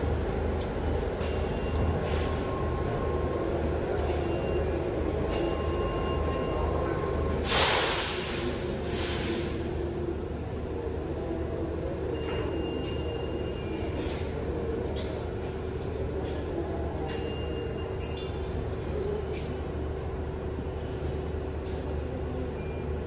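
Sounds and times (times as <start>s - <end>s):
subway train rumble: 0.0s - 23.0s
air hiss: 7.4s - 9.8s.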